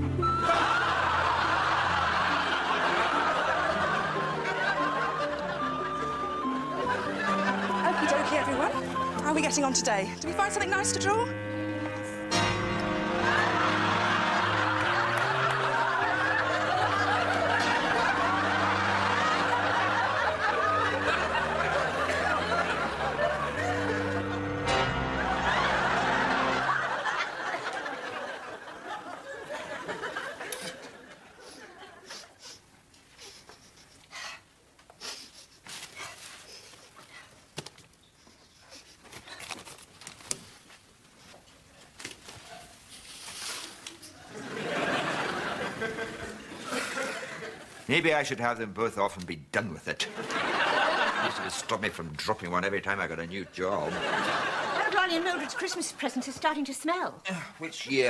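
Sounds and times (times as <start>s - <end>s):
audience laughing: 0.2s - 11.5s, 12.3s - 32.6s, 44.1s - 47.9s, 50.0s - 52.0s, 53.4s - 56.4s
rustling of clothes and packages: 35.5s - 38.0s, 38.8s - 44.3s.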